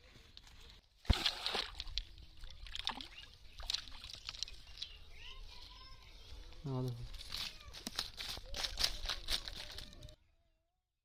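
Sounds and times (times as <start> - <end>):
water splashing and sloshing: 0.4 - 4.8.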